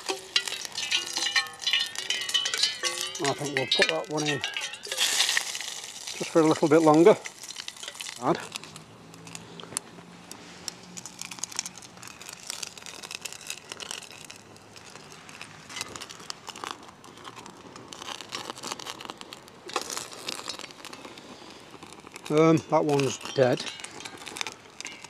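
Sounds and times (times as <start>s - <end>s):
fire flaring in a frying pan: 0.0s - 25.0s
rustling in dry leaves: 0.0s - 25.0s.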